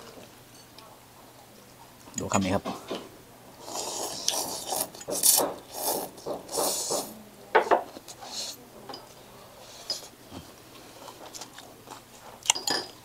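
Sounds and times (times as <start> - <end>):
person slurping noodles: 3.6 - 7.1.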